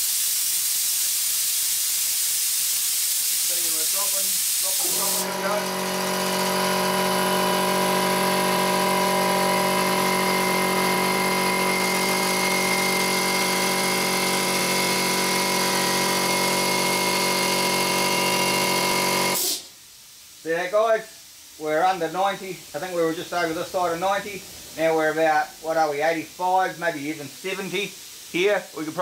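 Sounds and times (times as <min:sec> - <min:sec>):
air compressor running: 0:00.0 - 0:19.7.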